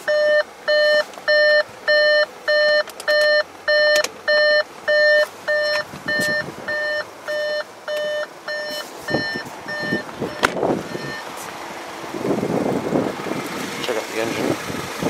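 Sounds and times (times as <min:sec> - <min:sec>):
car warning chime beeping: 0:00.0 - 0:11.3
thumps: 0:07.9 - 0:11.6.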